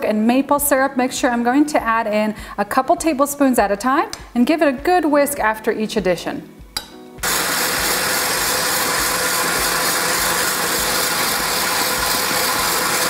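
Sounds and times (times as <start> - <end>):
stand mixer whisking: 7.2 - 13.0.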